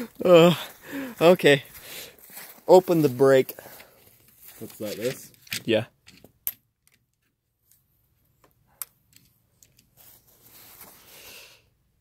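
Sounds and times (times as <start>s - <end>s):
rustling: 2.2s - 5.8s, 9.6s - 11.2s.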